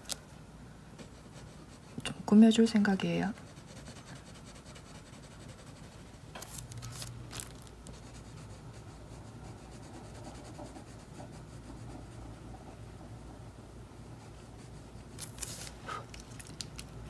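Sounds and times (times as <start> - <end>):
low steady hum: 0.0 - 17.0
scratchy drawing strokes on paper: 3.3 - 7.1, 7.9 - 12.6
faint rubbing on paper: 3.3 - 12.8.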